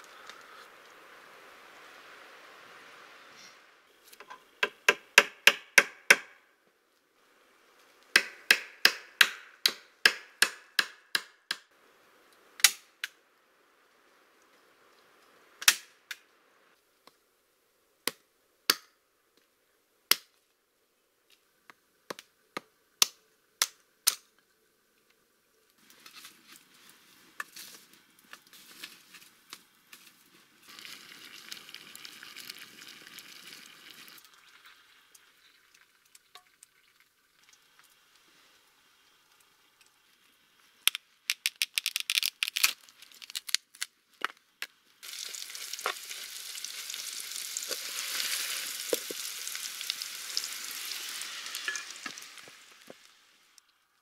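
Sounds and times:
wood fire crackling: 0:00.0 - 0:04.2, 0:23.0 - 0:54.0
hatchet splitting firewood: 0:08.1 - 0:11.6.

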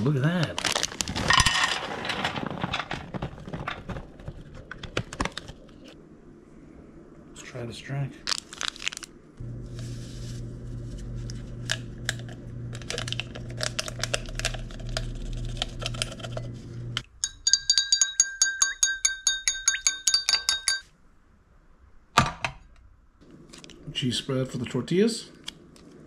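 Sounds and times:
electric hum: 0:05.3 - 0:17.1
spoon clinking in glass: 0:17.0 - 0:20.8.

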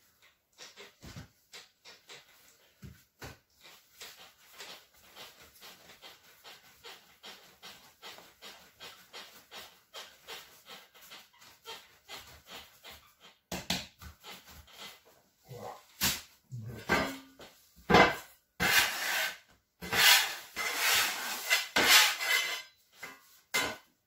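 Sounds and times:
dough rubbing on board: 0:02.2 - 0:16.1, 0:18.6 - 0:23.4.

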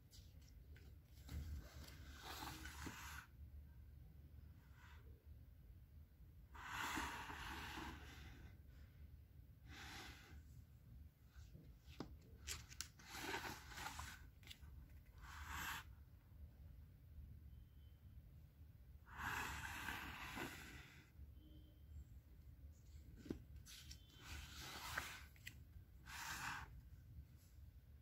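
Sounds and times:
page turning: 0:11.9 - 0:14.7.

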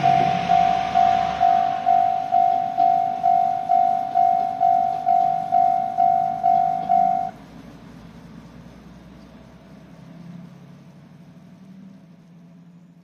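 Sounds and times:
level crossing bell dinging: 0:00.0 - 0:07.4.

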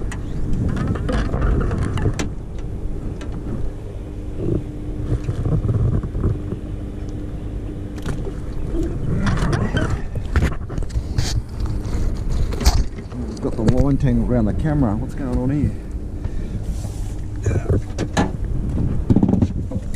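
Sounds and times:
steady hum: 0:00.0 - 0:19.9
water around boat: 0:00.0 - 0:19.9
wind: 0:00.0 - 0:19.9
knocks and rustles on deck: 0:19.0 - 0:19.9.

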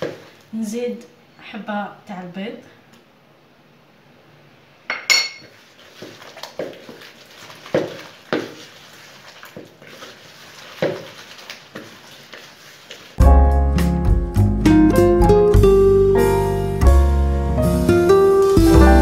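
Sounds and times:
glass dish clinking: 0:04.9 - 0:05.5
hand squelching dough: 0:05.5 - 0:13.2.

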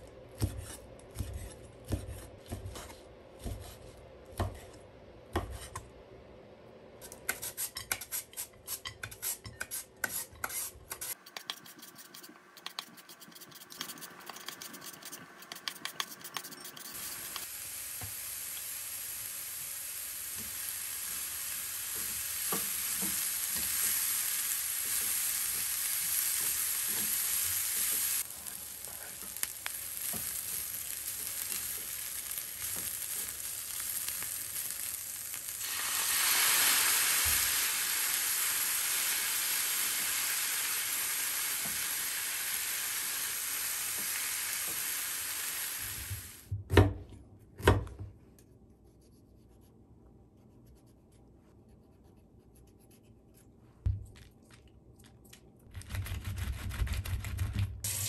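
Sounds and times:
vegetables sizzling in a frying pan: 0:17.0 - 0:46.5.

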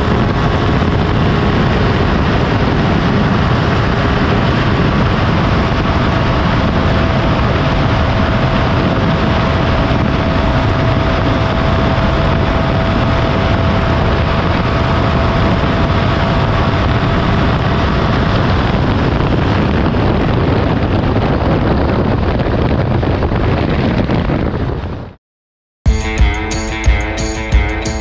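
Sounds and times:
steady whine: 0:00.0 - 0:19.2, 0:25.9 - 0:28.0
heavy wind noise: 0:00.0 - 0:25.2, 0:25.9 - 0:28.0
motorcycle engine at high speed: 0:00.0 - 0:25.2, 0:25.9 - 0:28.0.

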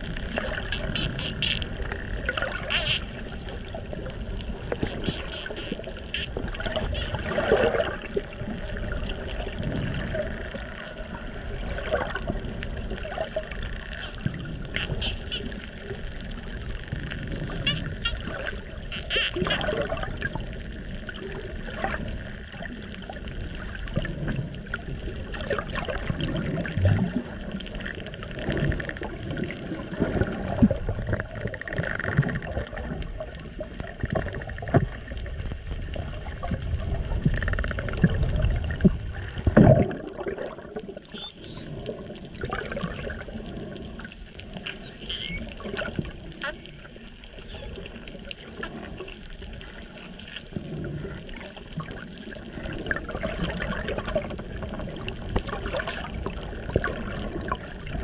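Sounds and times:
underwater rushing and bubbling: 0:00.0 - 0:58.0
dolphins whistling: 0:02.7 - 0:07.4, 0:14.8 - 0:15.5, 0:17.4 - 0:18.3, 0:18.9 - 0:19.6, 0:41.1 - 0:42.2, 0:42.8 - 0:43.9, 0:44.7 - 0:45.6, 0:46.3 - 0:47.7, 0:55.2 - 0:56.0.

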